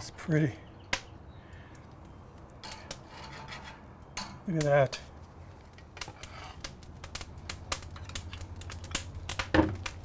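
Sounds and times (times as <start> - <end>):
grill clicks and crackles: 0.0 - 10.0.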